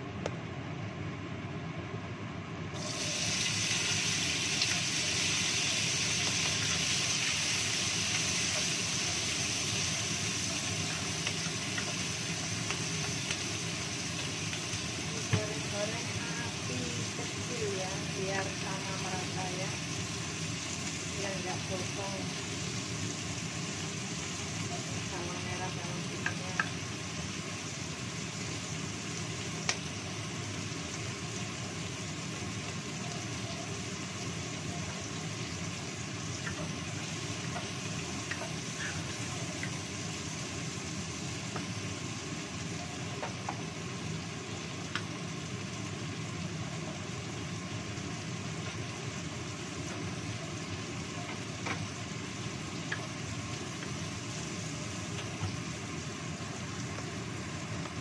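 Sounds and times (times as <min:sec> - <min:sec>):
extractor fan droning: 0:00.0 - 0:33.0
food sizzling in oil: 0:02.7 - 0:58.0.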